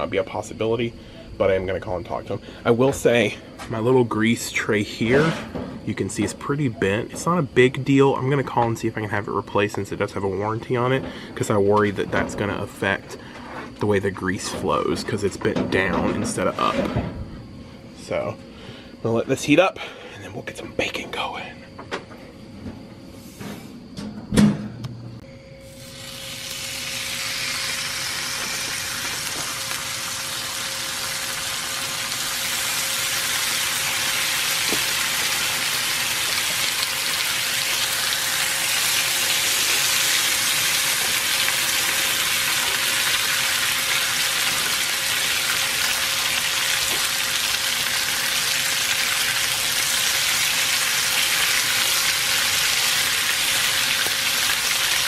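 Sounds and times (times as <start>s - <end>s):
bacon sizzling on a griddle: 25.6s - 55.0s.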